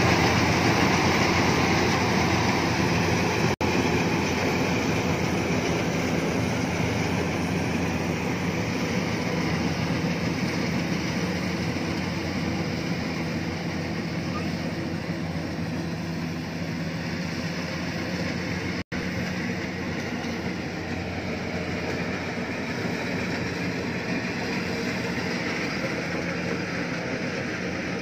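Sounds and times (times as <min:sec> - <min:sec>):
combine harvester droning: 0:00.0 - 0:28.0.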